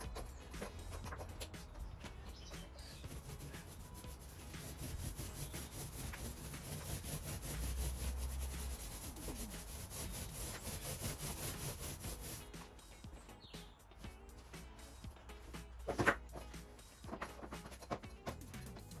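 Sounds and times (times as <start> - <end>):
paint roller rasping on wall: 2.8 - 12.7.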